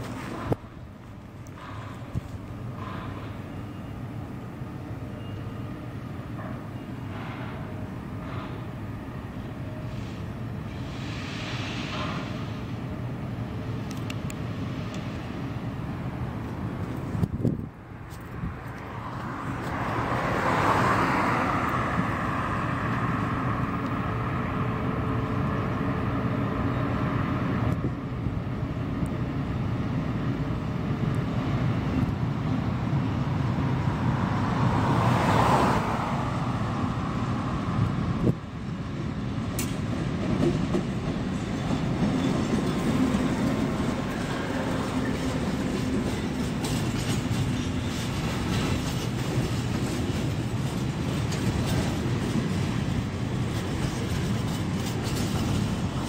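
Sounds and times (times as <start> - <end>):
diesel locomotive running: 0.0 - 56.0
road vehicle passing: 16.8 - 27.7, 33.5 - 38.3.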